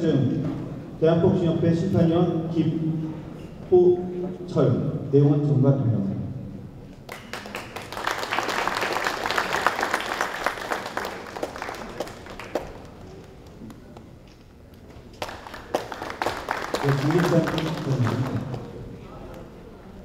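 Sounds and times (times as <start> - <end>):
people applauding: 7.1 - 14.1, 14.7 - 18.8.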